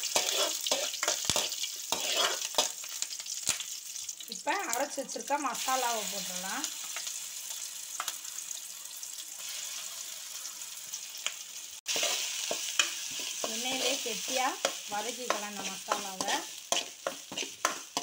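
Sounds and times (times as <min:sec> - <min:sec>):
metal spoon scraping pan: 0:00.0 - 0:02.7, 0:11.9 - 0:18.0
paste sizzling in oil: 0:00.0 - 0:18.0.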